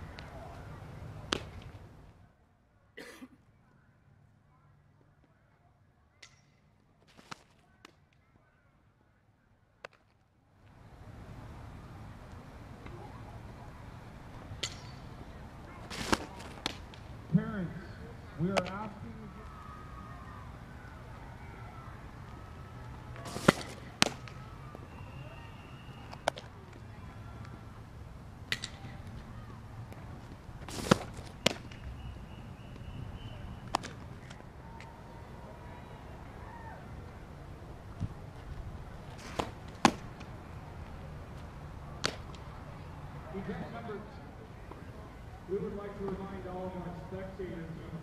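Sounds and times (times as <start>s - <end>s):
ball smacking into glove: 15.8s - 17.0s, 23.2s - 24.4s, 30.6s - 31.8s, 33.7s - 34.4s, 39.1s - 40.3s, 42.0s - 42.4s.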